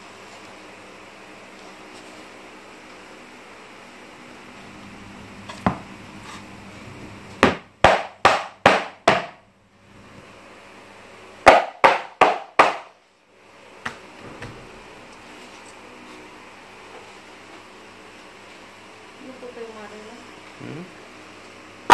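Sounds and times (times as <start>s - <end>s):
hard knocks on paper board: 7.4s - 9.4s, 11.4s - 12.9s.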